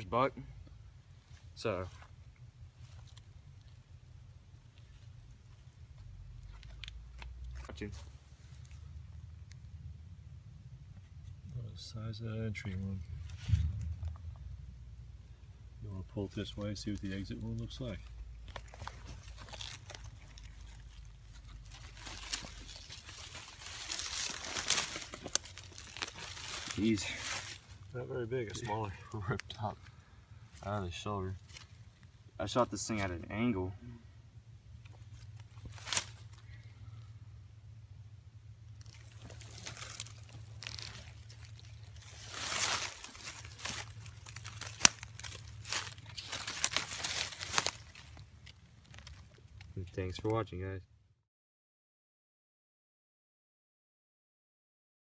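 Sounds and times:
dry leaves rustling and crunching: 1.2s - 3.8s, 16.1s - 29.4s, 30.5s - 33.1s, 34.8s - 36.8s, 38.7s - 49.7s.

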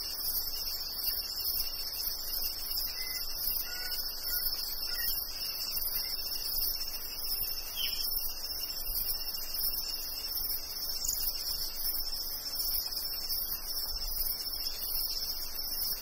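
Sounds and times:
crickets and cicadas chorusing: 0.0s - 16.0s.

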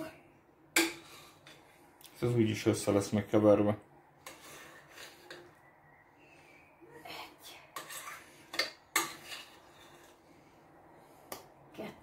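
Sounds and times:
utensils scraping a bowl: 4.2s - 5.6s, 7.7s - 10.4s.

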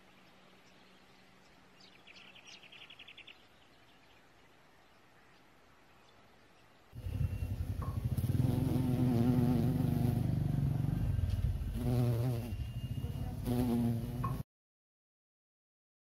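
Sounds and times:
bee buzzing in flight: 7.0s - 14.4s.

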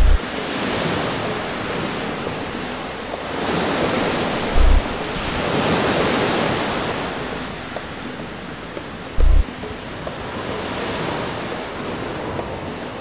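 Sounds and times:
wind buffeting microphone: 0.0s - 1.8s, 2.5s - 7.8s, 9.2s - 9.5s
strong wind: 0.0s - 13.0s
surf breaking: 3.2s - 7.0s.

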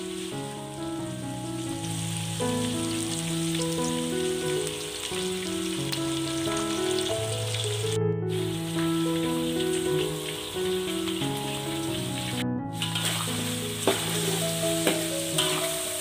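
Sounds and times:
chicken sizzling in hot oil: 0.0s - 16.0s
music of slow held notes: 0.0s - 16.0s.

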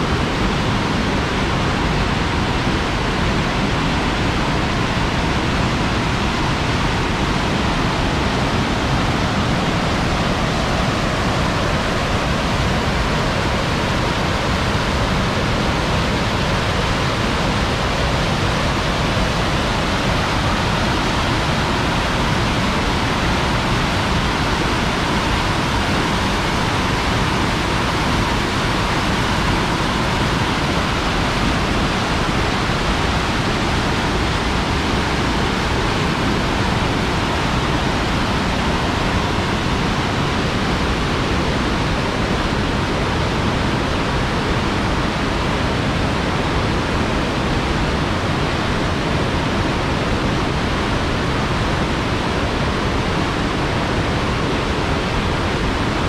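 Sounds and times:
river rapids rushing: 0.0s - 56.0s.

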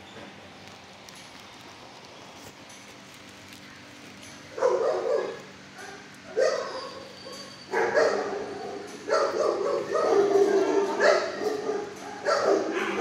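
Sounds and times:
dog barking: 4.6s - 7.1s, 7.7s - 13.0s.

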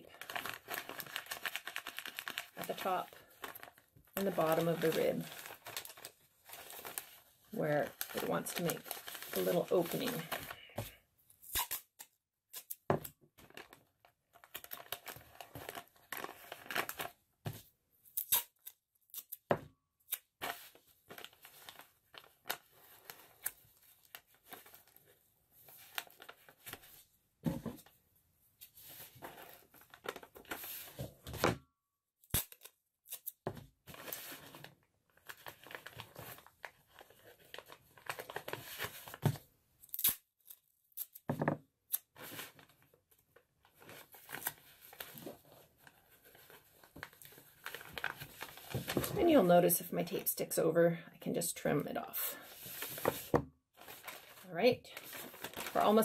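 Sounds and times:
paper bag crinkling: 0.1s - 10.4s, 52.5s - 56.0s
tape pulled and torn: 11.4s - 12.9s, 18.1s - 19.5s, 32.2s - 33.4s, 39.8s - 41.3s.

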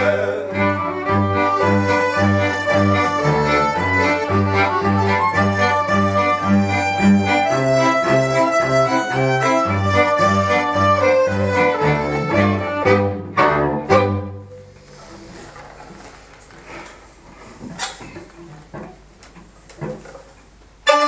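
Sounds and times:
cello bowing pulsing bass: 0.0s - 15.2s
folk band playing instrumental tune: 0.0s - 15.4s.

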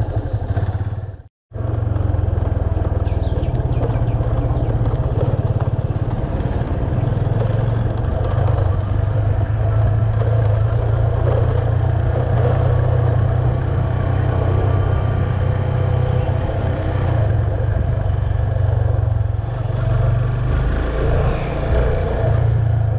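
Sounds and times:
motorcycle engine running: 0.0s - 22.9s.

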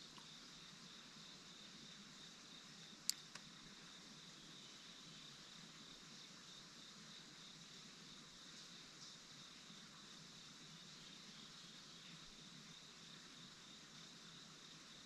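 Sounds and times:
sharp clicks: 3.0s - 3.5s.

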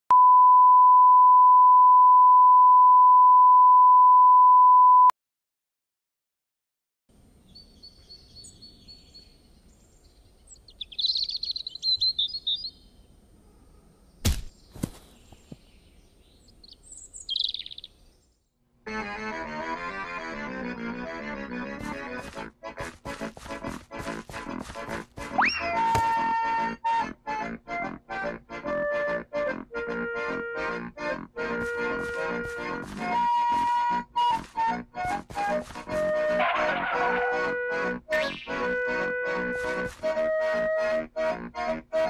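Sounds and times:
reference tone beep: 0.1s - 5.1s
faint outdoor ambience: 7.1s - 18.8s
birds chirping: 7.4s - 18.5s
sharp knock: 14.2s - 14.5s
music: 18.8s - 42.0s.

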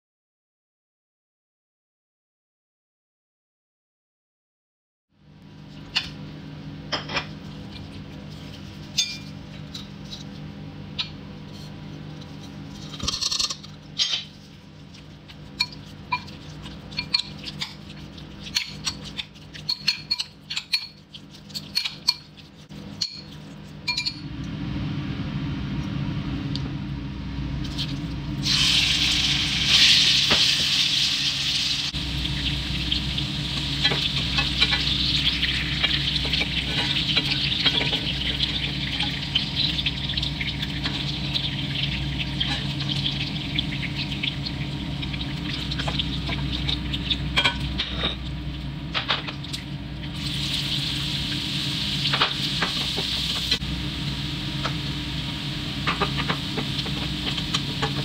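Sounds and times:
spoon clinking against glass bowl: 9.0s - 9.3s, 17.0s - 17.7s, 19.6s - 21.0s, 23.0s - 24.2s
chicken sizzling in hot oil: 28.4s - 47.8s, 49.4s - 58.0s.

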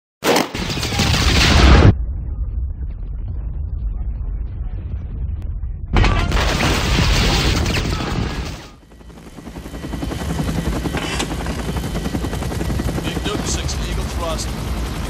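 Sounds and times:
loud boom: 0.6s - 8.5s
low rumble: 1.2s - 7.6s
helicopter rotor noise: 7.6s - 15.0s.

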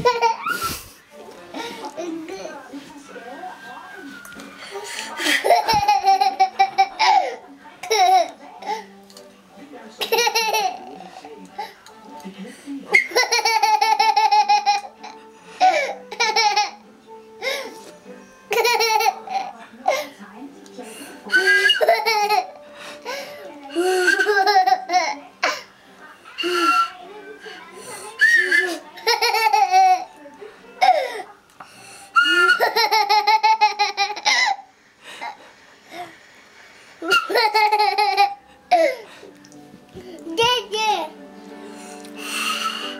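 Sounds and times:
toddler laughing: 0.0s - 0.8s, 5.2s - 8.3s, 10.0s - 11.0s, 13.0s - 15.2s, 15.8s - 16.8s, 18.5s - 19.5s, 21.8s - 22.5s, 23.8s - 25.2s, 29.0s - 30.0s, 32.3s - 34.6s, 37.0s - 39.0s.

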